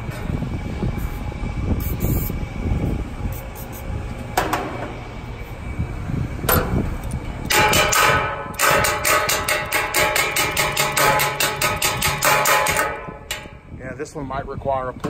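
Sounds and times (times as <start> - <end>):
wrench striking metal hub: 7.4 - 13.6.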